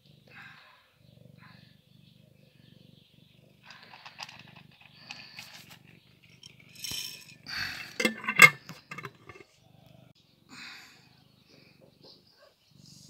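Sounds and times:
cat purring: 0.0s - 10.4s, 11.0s - 13.0s
cat crunching dry kibble: 3.7s - 6.7s
bowl clicks and clinks: 6.3s - 9.4s.

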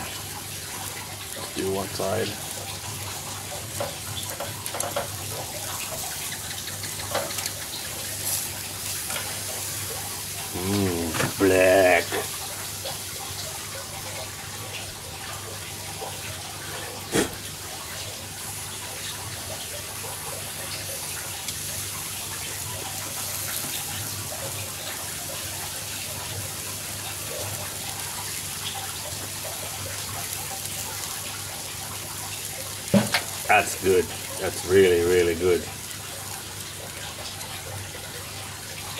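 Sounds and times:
meat sizzling on a grill: 0.0s - 38.9s
sharp pop: 17.1s - 17.4s, 32.9s - 33.2s.

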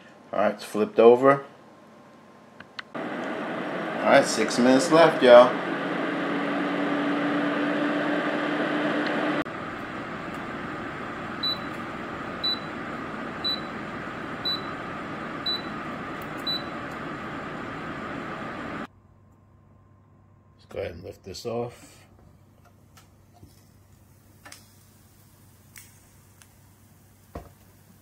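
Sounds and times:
air fryer fan whirring: 3.0s - 18.9s
air fryer beeps: 11.4s - 18.6s.

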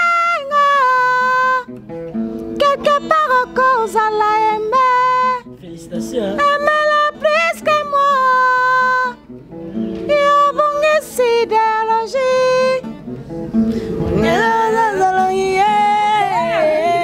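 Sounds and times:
woman singing: 0.0s - 1.8s, 2.6s - 5.5s, 6.3s - 9.3s, 10.0s - 12.9s, 14.0s - 17.0s
guitar accompaniment: 0.0s - 17.0s.

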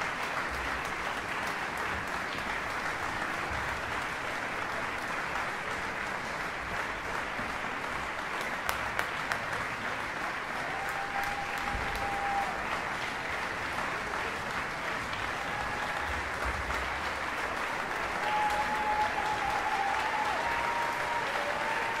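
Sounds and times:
audience applauding: 0.0s - 22.0s.

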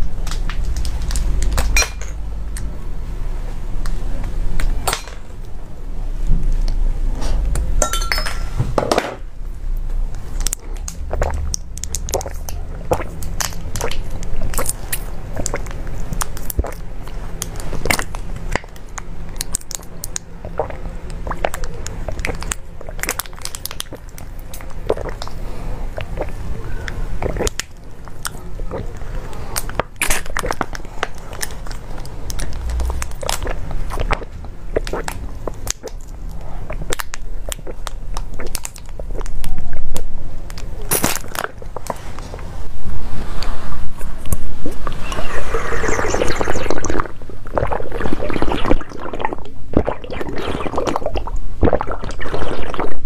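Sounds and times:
wet mouth clicks: 10.4s - 26.4s, 29.6s - 42.0s, 44.2s - 53.0s
slurping liquid through tube: 10.5s - 16.8s, 19.4s - 26.5s, 27.2s - 40.0s, 43.1s - 53.0s
sucking drink from plastic tube: 20.4s - 23.0s, 24.8s - 26.4s, 44.3s - 53.0s.

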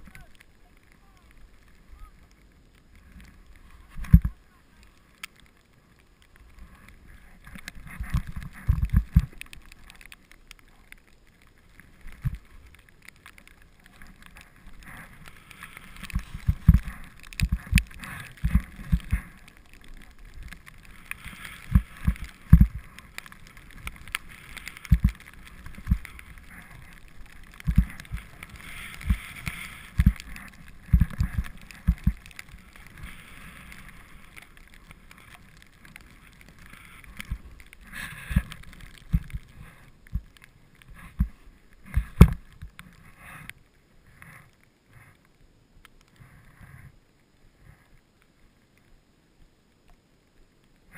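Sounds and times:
skis scraping snow: 0.0s - 45.2s.

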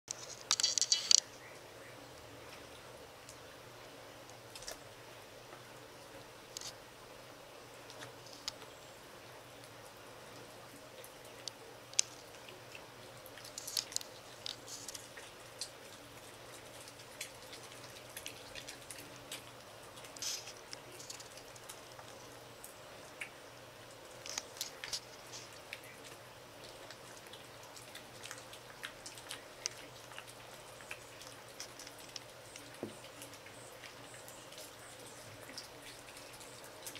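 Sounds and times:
otters chewing wet clicks: 0.1s - 6.9s, 7.6s - 36.9s.

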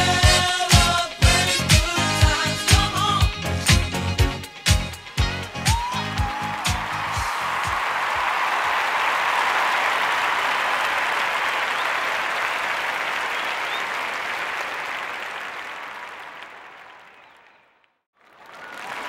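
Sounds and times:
crowd applause: 5.6s - 19.0s.

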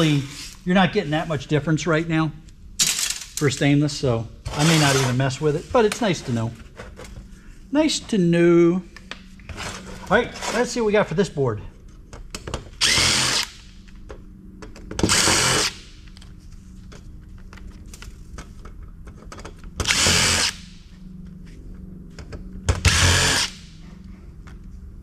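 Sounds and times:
cordless drill motor spinning: 12.8s - 13.6s, 15.0s - 15.7s, 19.8s - 20.6s, 22.8s - 23.6s.

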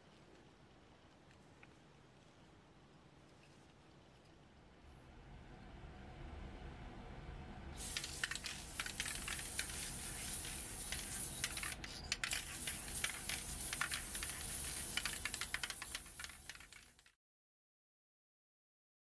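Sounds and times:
aerosol can spraying hiss: 7.8s - 17.1s
small crackling clicks: 7.8s - 17.2s.

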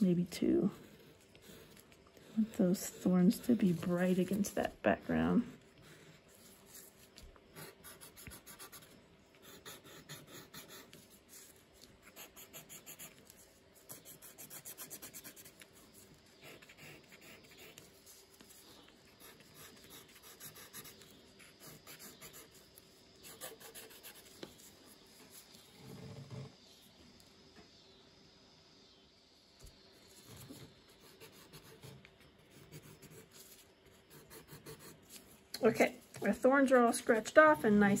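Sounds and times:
skewer scratching on paper: 0.7s - 4.8s, 5.5s - 26.0s, 30.2s - 35.4s.

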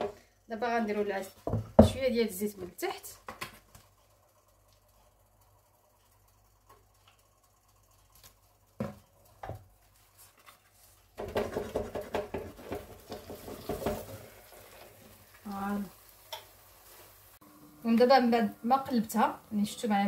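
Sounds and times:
food sizzling in a frying pan: 11.2s - 20.0s.

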